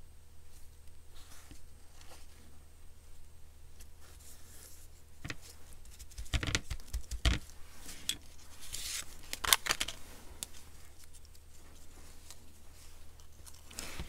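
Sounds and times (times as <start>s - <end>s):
paper rustling: 4.0s - 14.0s.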